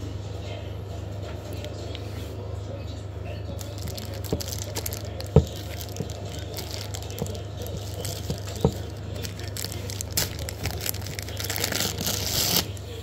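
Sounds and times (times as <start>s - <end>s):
steady low hum: 0.0s - 13.0s
plastic wrapping crinkling: 3.6s - 12.9s.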